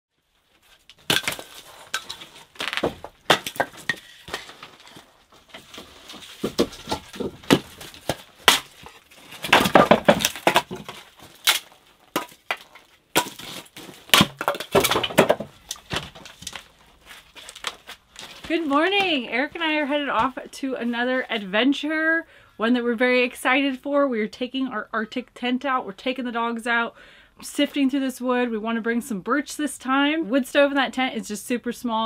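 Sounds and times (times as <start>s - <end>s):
firewood pieces knocking together: 0.9s - 19.1s
axe striking wood on block: 6.5s - 8.7s, 14.1s - 15.5s.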